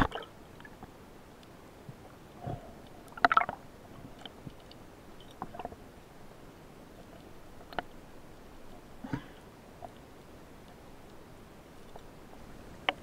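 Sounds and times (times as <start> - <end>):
muffled underwater ambience: 0.0 - 13.0
faint clicks: 2.8 - 5.8, 7.0 - 8.0, 11.8 - 13.0.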